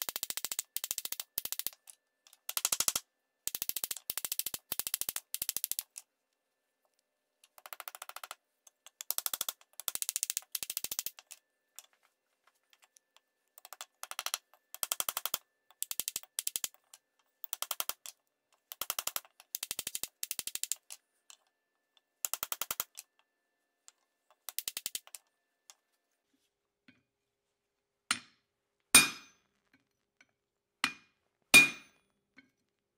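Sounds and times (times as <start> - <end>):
hammer tapping: 29.0 - 29.4, 30.8 - 32.0.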